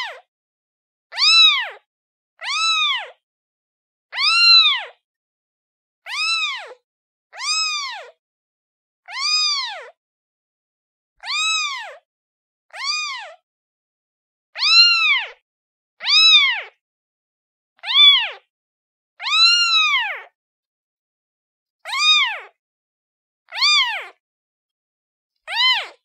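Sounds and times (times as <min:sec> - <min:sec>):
kitten meowing: 0:01.1 - 0:01.8, 0:02.4 - 0:03.2, 0:04.1 - 0:05.0, 0:06.1 - 0:08.2, 0:09.1 - 0:10.0, 0:11.2 - 0:12.0, 0:12.7 - 0:13.4, 0:14.6 - 0:15.4, 0:16.0 - 0:16.8, 0:17.8 - 0:18.4, 0:19.2 - 0:20.3, 0:21.9 - 0:22.5, 0:23.5 - 0:24.2, 0:25.5 - 0:26.0.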